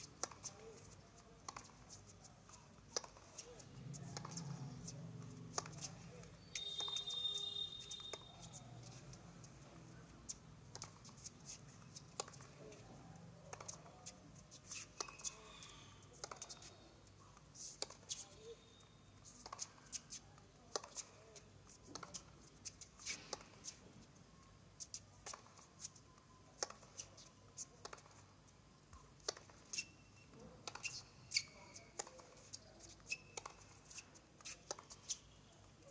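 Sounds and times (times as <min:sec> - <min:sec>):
tennis racquet strikes: 0:00.0 - 0:04.9, 0:05.5 - 0:06.0, 0:30.6 - 0:35.2
tennis ball bounces: 0:01.4 - 0:01.9, 0:02.9 - 0:03.3.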